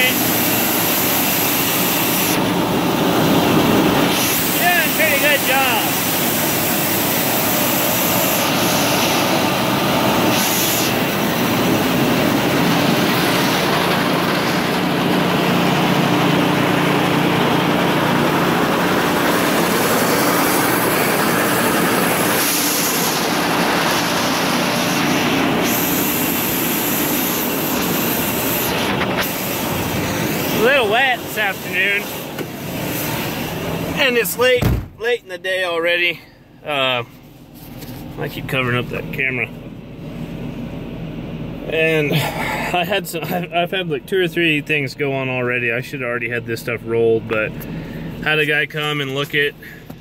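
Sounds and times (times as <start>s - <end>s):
roller mill machinery running: 0.0s - 35.0s.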